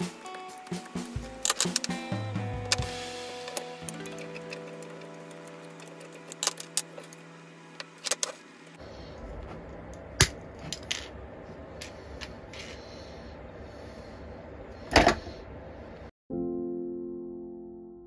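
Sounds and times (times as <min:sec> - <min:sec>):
tools clicking and clinking: 0:00.2 - 0:02.1, 0:03.5 - 0:07.2, 0:07.8 - 0:08.4.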